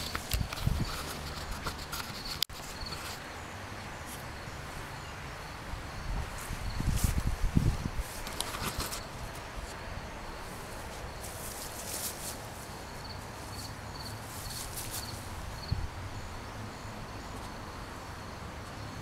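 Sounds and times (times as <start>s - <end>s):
rustles: 0.0s - 16.4s
insect chirping in pulses: 8.8s - 18.9s.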